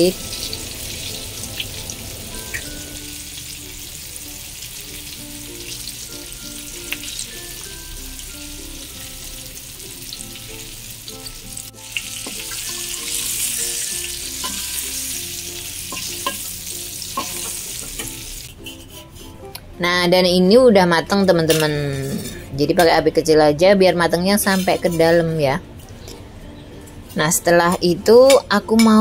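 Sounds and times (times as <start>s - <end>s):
chicken sizzling in hot oil: 0.0s - 18.6s.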